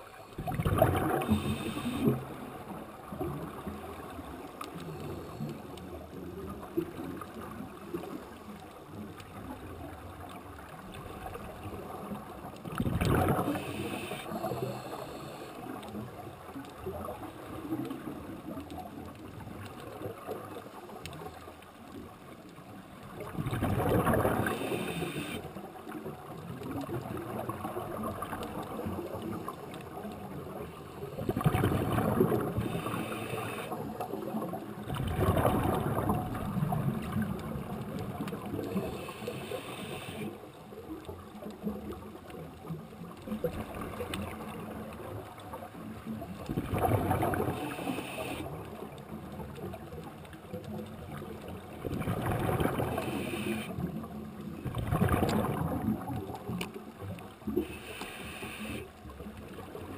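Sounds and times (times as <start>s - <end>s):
underwater hiss: 0.0s - 2.7s, 4.7s - 5.9s, 13.0s - 16.0s, 23.8s - 25.6s, 31.1s - 34.0s, 38.4s - 40.4s, 47.1s - 48.6s, 52.4s - 53.9s, 57.5s - 58.9s
bubbles rushing and gurgling: 0.0s - 5.0s, 9.2s - 15.2s, 16.0s - 40.0s, 40.6s - 57.8s.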